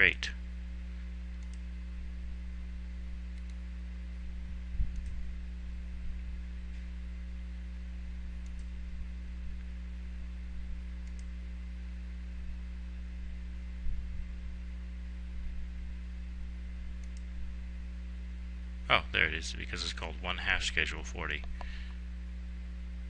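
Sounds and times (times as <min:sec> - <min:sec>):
low electrical hum: 0:00.0 - 0:23.0
computer mouse clicks: 0:01.4 - 0:01.7, 0:03.3 - 0:03.6, 0:04.8 - 0:05.2, 0:08.4 - 0:08.8, 0:11.0 - 0:11.3, 0:17.0 - 0:17.3.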